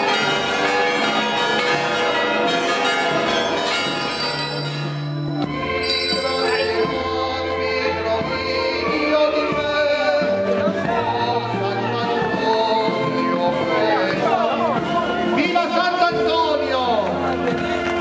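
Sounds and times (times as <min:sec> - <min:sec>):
church bells pealing: 0:00.0 - 0:07.0.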